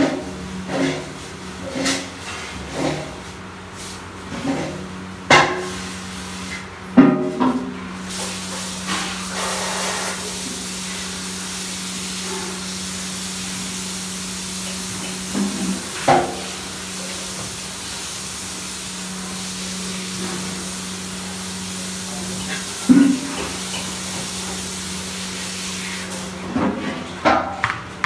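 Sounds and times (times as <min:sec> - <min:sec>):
steady hiss: 0:08.0 - 0:26.2.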